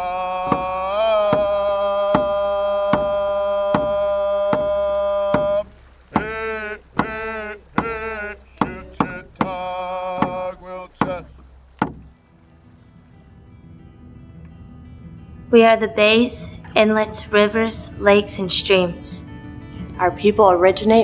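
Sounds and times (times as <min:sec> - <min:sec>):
person singing: 0:00.0 - 0:11.3
steady drum beat: 0:00.4 - 0:12.2.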